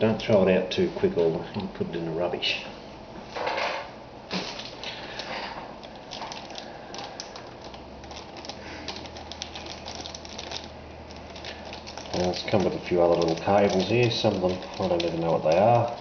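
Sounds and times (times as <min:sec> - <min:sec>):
rustling of small items: 0:03.3 - 0:16.0.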